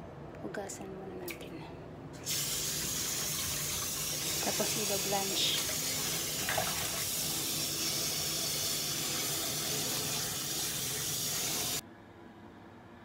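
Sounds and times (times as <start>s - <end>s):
tap water pouring into pot: 2.2s - 11.8s.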